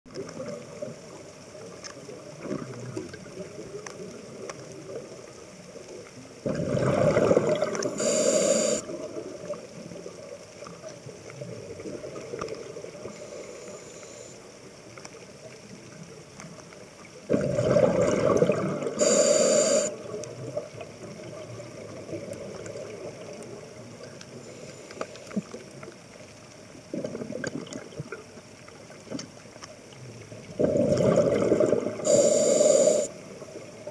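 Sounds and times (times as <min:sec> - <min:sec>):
underwater background noise: 0:00.1 - 0:33.9
exhaled bubbles rushing: 0:06.4 - 0:08.0, 0:17.3 - 0:19.1, 0:30.4 - 0:32.1
diver breathing through regulator: 0:07.8 - 0:08.8, 0:13.1 - 0:14.4, 0:19.0 - 0:19.9, 0:32.0 - 0:33.1.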